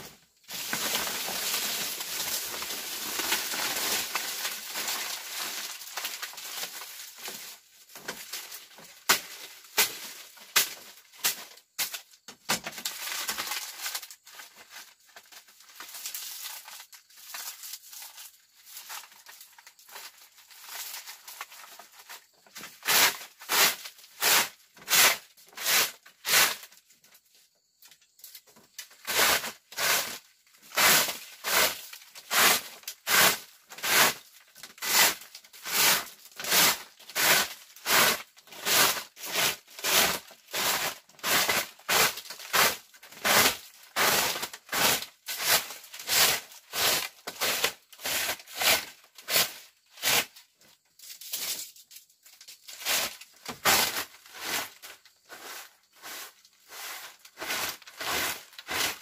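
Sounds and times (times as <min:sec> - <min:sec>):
rustling and crackling: 0:00.0 - 0:12.0.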